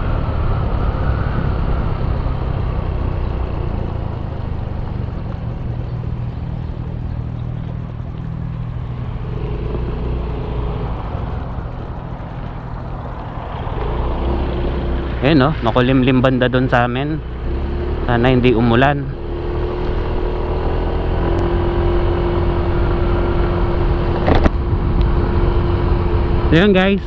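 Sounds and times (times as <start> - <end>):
wind noise on microphone: 0.0 - 5.0, 19.6 - 26.9
motorcycle engine and road noise: 0.0 - 27.0.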